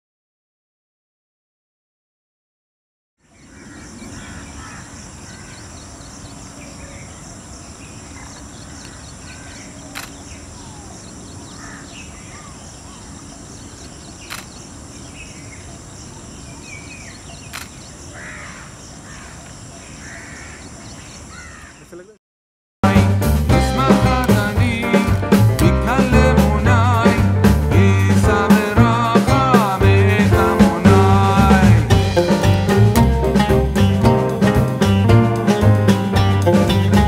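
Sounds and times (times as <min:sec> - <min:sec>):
birds chirping: 0:03.2 - 0:22.2
sharp clicks: 0:09.9 - 0:10.3, 0:14.2 - 0:14.6, 0:17.4 - 0:17.9.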